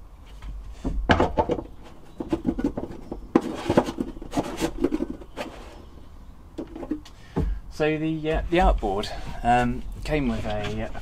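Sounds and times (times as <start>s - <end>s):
wooden knocks and clatter: 0.3s - 5.8s, 6.6s - 7.6s.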